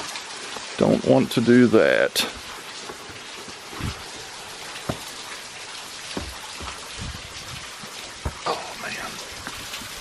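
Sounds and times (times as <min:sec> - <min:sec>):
waterfall splashing onto rock: 0:00.0 - 0:10.0
dull thumps on boulders: 0:02.3 - 0:10.0.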